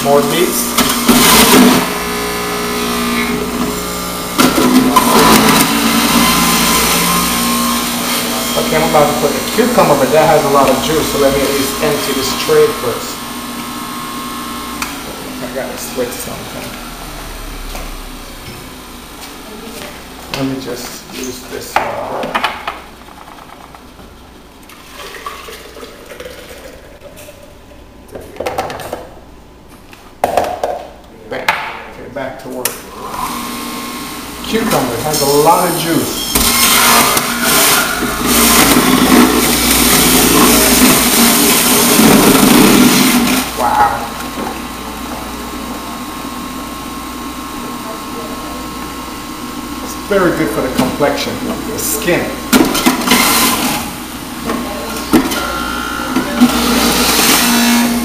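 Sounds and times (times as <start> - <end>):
electric juicer motor grinding: 0.0 - 19.4, 32.9 - 58.0
juice pouring into pitcher: 24.6 - 27.4.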